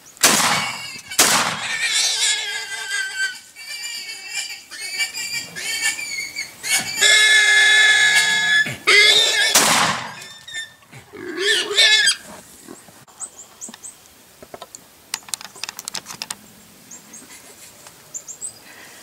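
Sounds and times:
hogs squealing: 0.4s - 12.3s
sharp clicks and rustles: 14.4s - 16.4s.

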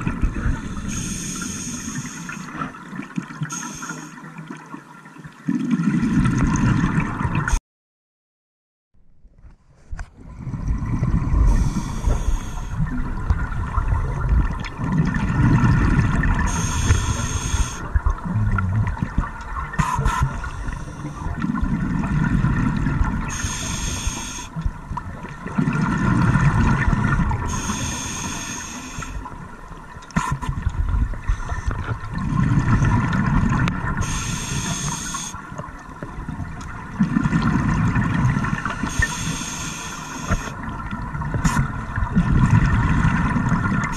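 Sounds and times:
regulator inhale hiss: 0.5s - 2.5s, 3.5s - 4.2s, 11.4s - 12.8s, 16.5s - 17.9s, 19.8s - 21.3s, 23.3s - 24.6s, 27.4s - 29.3s, 34.0s - 35.4s, 38.8s - 40.6s
exhaled air bubbling: 5.3s - 7.6s, 10.2s - 43.9s
faint steady hum: 10.4s - 43.9s.

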